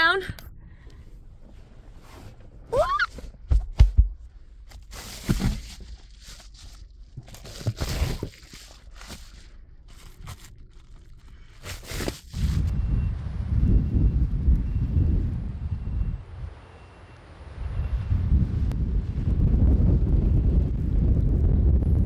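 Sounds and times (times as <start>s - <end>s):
foil covers rustling and crinkling: 4.7s - 12.6s.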